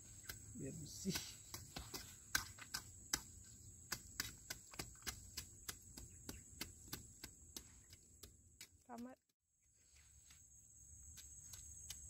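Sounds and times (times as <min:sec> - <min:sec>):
machete chopping weeds in soil: 0:00.0 - 0:09.2.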